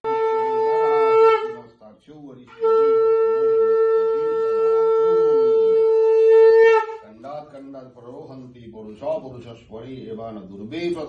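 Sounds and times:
conch shell blasts: 0:00.1 - 0:01.8, 0:02.5 - 0:07.2.

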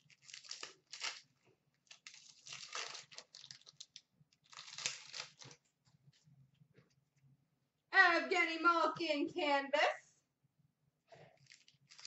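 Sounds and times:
foil wrapper tearing and crinkling: 0:00.0 - 0:05.6, 0:11.4 - 0:12.0.

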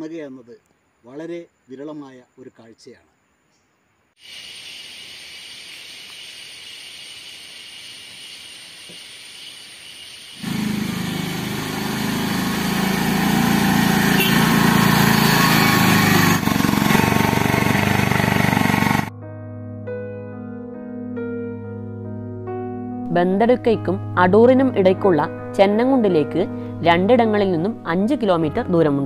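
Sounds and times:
steady high hiss: 0:00.0 - 0:10.6
loud rough motor running: 0:10.4 - 0:19.1.

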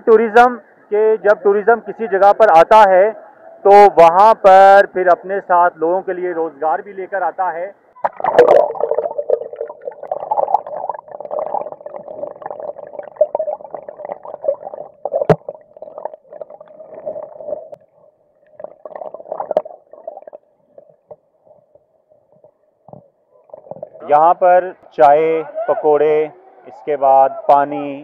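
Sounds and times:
splash: 0:08.0 - 0:09.4
muffled underwater stream gurgling: 0:08.0 - 0:24.0.

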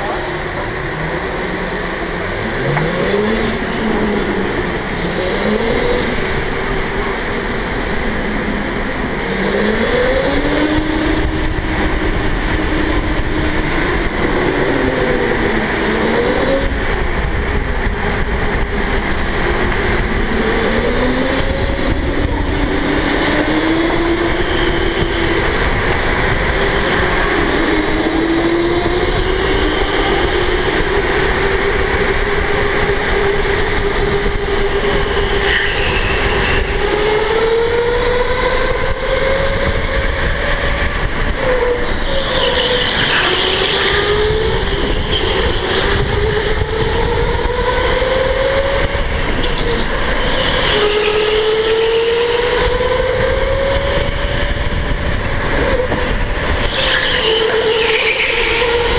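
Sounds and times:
electric go-kart motor whining: 0:00.0 - 0:58.9.

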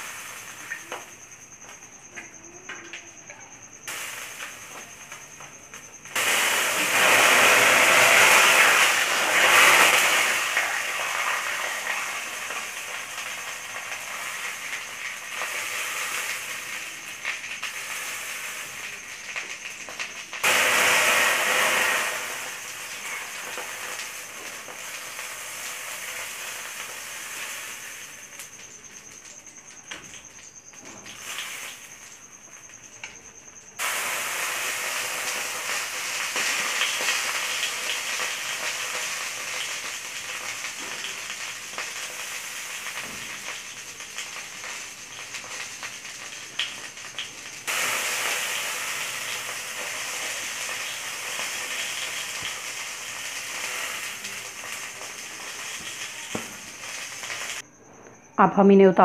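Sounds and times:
meat sizzling on grill pan: 0:00.0 - 0:01.2, 0:03.9 - 0:05.3, 0:06.2 - 0:29.0, 0:31.1 - 0:32.6, 0:33.8 - 0:57.6.

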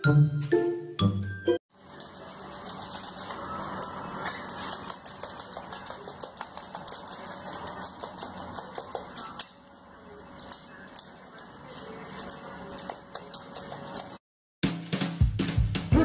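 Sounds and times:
parrot claws scrabbling on floor: 0:01.9 - 0:14.2.

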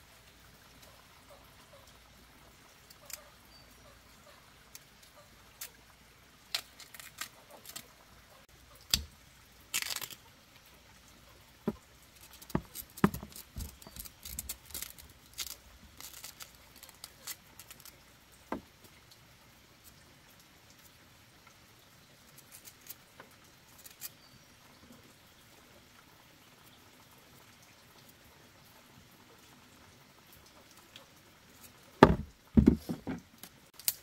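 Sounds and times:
bamboo sheaths crackling and tearing: 0:02.9 - 0:03.3, 0:04.8 - 0:08.1, 0:08.8 - 0:10.3, 0:11.6 - 0:18.6, 0:22.3 - 0:24.2, 0:31.6 - 0:34.0
soft knocks: 0:32.0 - 0:33.2.

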